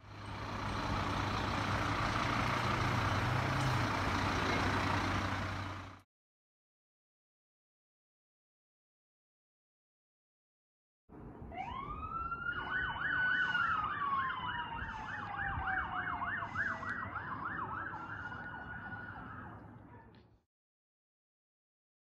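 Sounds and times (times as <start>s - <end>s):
fast siren yelp: 11.5s - 19.6s
fire truck siren wail: 11.5s - 19.8s.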